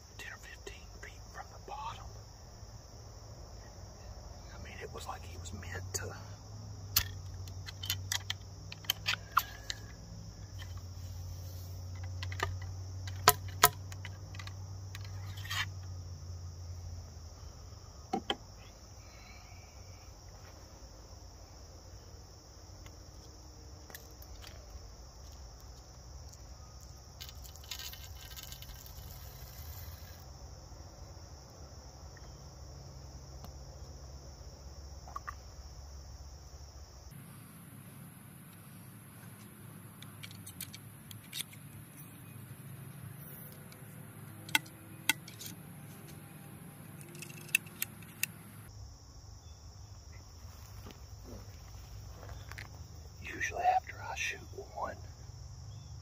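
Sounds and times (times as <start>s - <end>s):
insects chirping: 0.0s - 56.0s
ramrod clicking in gun barrel: 47.0s - 48.4s.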